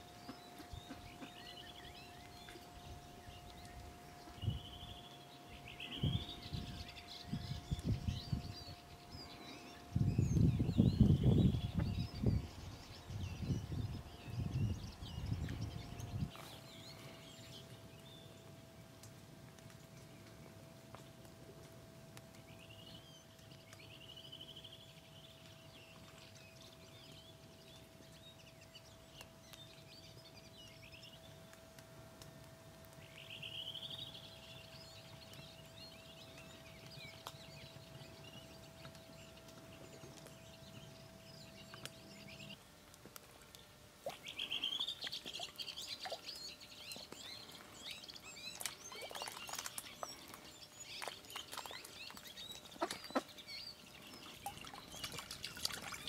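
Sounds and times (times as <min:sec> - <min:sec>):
birds calling and chirping: 0:00.0 - 0:18.7, 0:33.0 - 0:56.0
steady low hum: 0:00.0 - 0:56.0.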